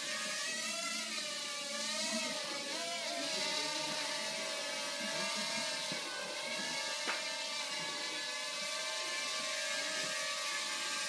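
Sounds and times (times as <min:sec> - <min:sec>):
quadcopter propellers buzzing: 0:00.0 - 0:11.0.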